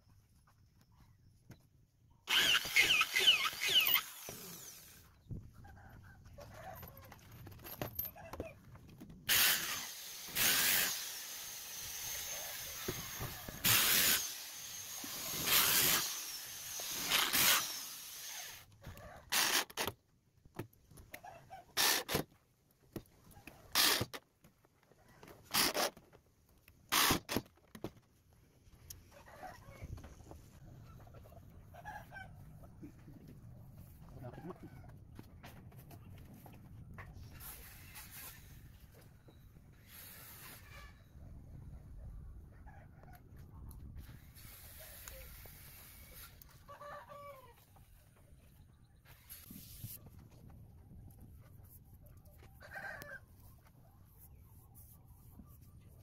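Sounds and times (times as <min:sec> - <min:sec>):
power drill driving screws: 0:02.3 - 0:05.0, 0:09.3 - 0:18.7, 0:19.3 - 0:20.0, 0:21.8 - 0:22.3, 0:23.7 - 0:24.2, 0:25.5 - 0:26.0, 0:26.9 - 0:27.5.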